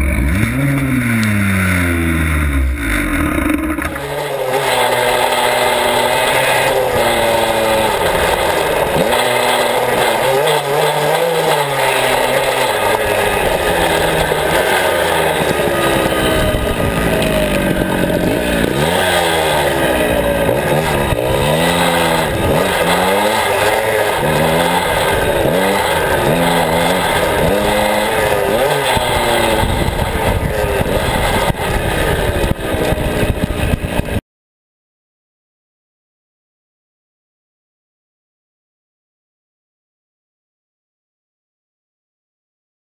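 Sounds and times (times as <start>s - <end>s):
two-stroke dirt bike revving: 0.0s - 34.2s.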